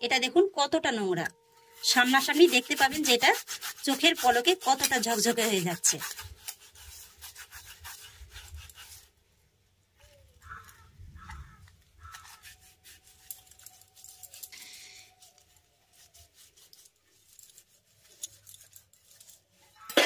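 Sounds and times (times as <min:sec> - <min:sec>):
gritty scrubbing on metal plate: 0:01.7 - 0:09.2, 0:12.0 - 0:19.9.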